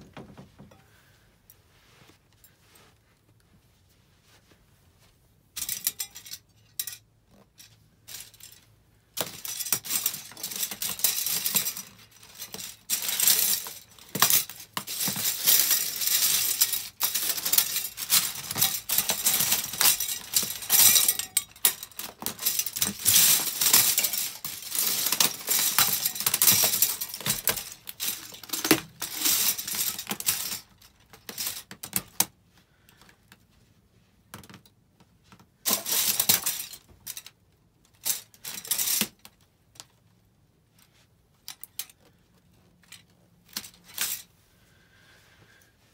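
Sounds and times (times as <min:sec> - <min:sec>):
plastic cutlery cracking underfoot: 0:09.2 - 0:32.3.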